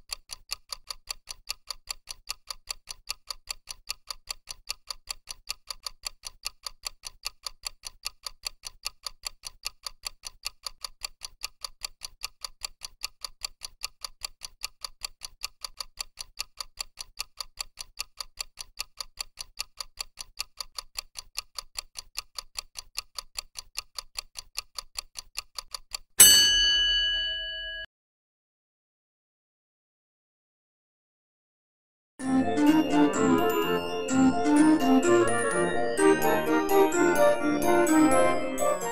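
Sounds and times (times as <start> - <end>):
clock ticking: 0.0 - 26.3, 32.2 - 38.9
bell-like ding: 26.2 - 27.9.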